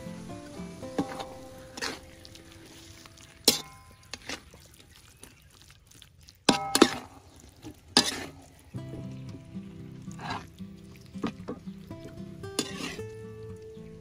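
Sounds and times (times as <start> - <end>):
faint sizzle: 0.0 - 5.7, 7.2 - 14.0
metal spatula scraping a wok: 8.0 - 8.4, 12.6 - 13.1.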